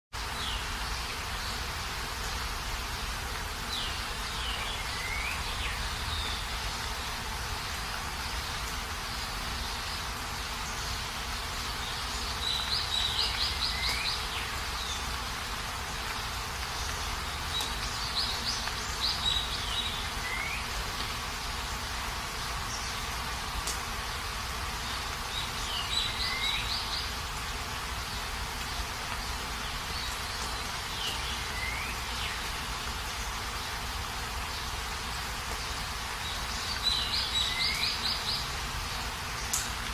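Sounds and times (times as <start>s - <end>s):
rain hissing: 0.1s - 39.9s
bird singing: 3.7s - 6.7s, 9.6s - 15.2s, 16.7s - 20.8s, 24.8s - 27.2s, 29.2s - 33.4s, 36.2s - 38.6s.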